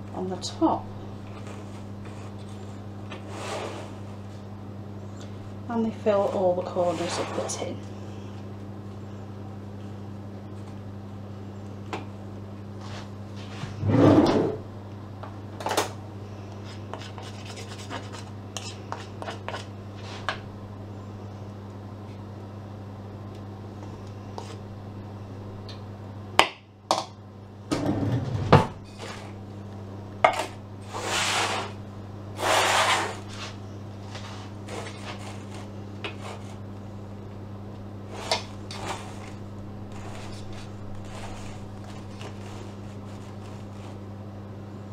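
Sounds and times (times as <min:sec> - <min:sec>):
steady low hum: 0:00.0 - 0:44.9
spatula scraping batter: 0:16.6 - 0:20.3, 0:32.4 - 0:36.6, 0:38.1 - 0:44.0.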